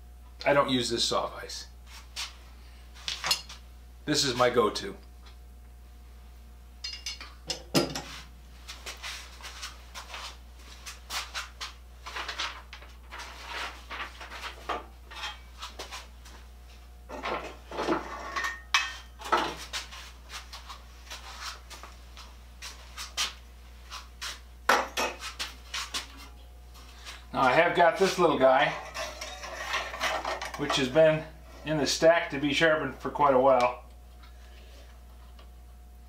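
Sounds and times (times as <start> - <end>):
steady low hum: 0.0 - 36.0
metal tools clanking on workbench: 15.1 - 15.5, 28.6 - 30.9.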